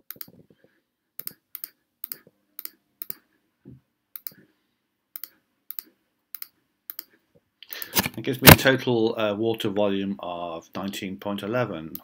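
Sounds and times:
computer mouse clicking: 0.1s - 0.4s, 1.2s - 3.2s, 4.2s - 4.4s, 5.2s - 7.1s.

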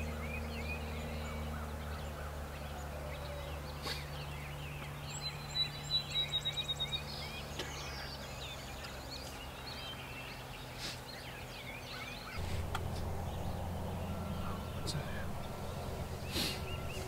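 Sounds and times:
songbirds singing: 0.0s - 17.0s
high whistled bird notes: 12.4s - 17.0s
low outdoor rumble: 12.4s - 17.0s.

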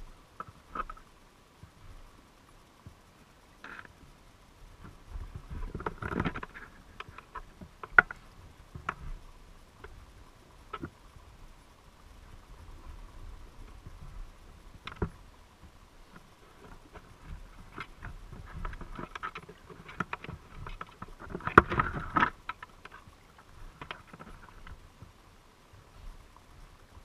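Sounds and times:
underwater clicks and knocks: 0.4s - 1.1s, 4.8s - 9.2s, 10.7s - 11.0s, 13.6s - 25.1s.

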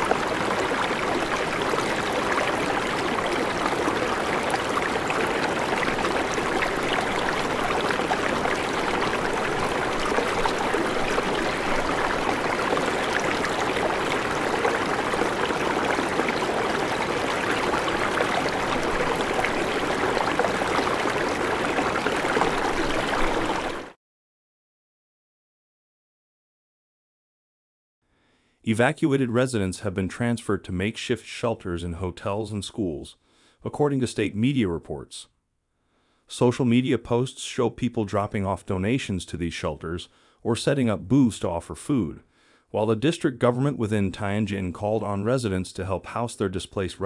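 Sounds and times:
floodwater rushing: 0.0s - 24.0s.

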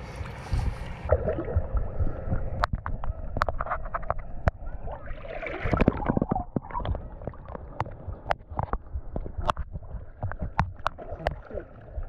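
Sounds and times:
water sloshing and gurgling: 0.0s - 12.0s
sharp clicks and knocks: 5.7s - 11.4s.

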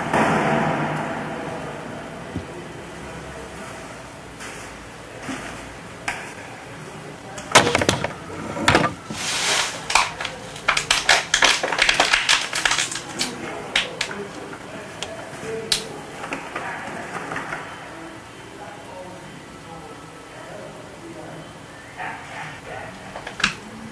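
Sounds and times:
waste clicking and rattling: 7.4s - 15.1s
crinkling: 7.4s - 17.6s.

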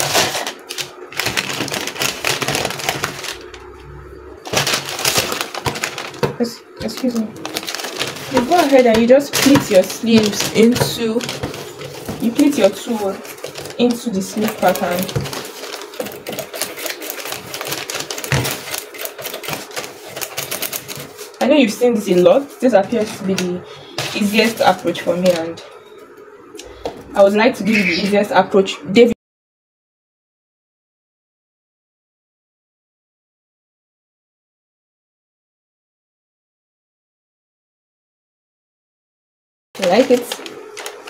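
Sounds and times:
paper and fabric rustling: 0.0s - 3.7s, 4.4s - 25.7s, 39.8s - 41.0s.

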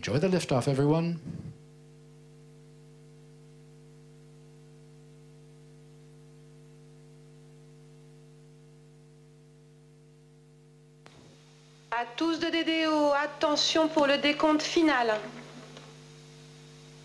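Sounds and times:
electrical hum: 0.0s - 17.0s
faint hiss: 11.0s - 17.0s.

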